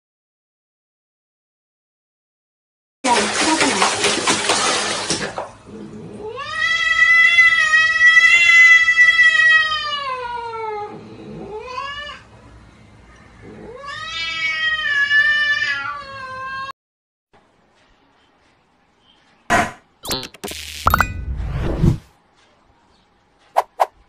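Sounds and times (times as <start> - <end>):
cat yowling: 6.2 - 12.2, 13.5 - 16.7.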